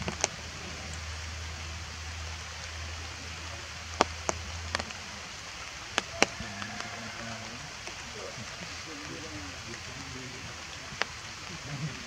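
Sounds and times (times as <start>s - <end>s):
low steady rumble: 0.0s - 12.0s
rain on foliage: 0.0s - 12.0s
drops ticking close by: 2.2s - 11.7s.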